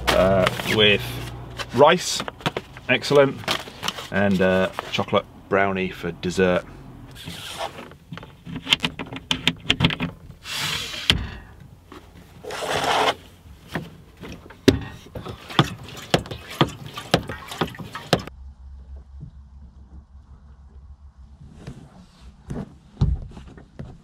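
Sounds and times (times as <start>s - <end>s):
low steady hum: 13.3s - 23.0s.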